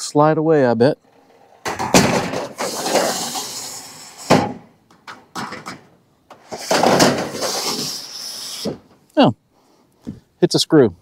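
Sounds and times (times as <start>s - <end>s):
rushing scrape: 1.1s - 4.6s, 6.4s - 8.8s.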